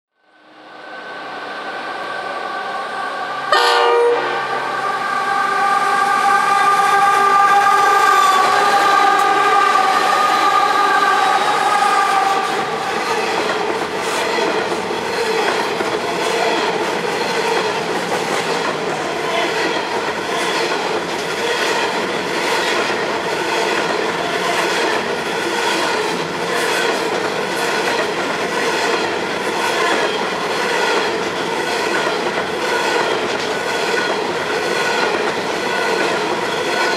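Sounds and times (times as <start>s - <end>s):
train horn blasts: 3.4s - 12.8s.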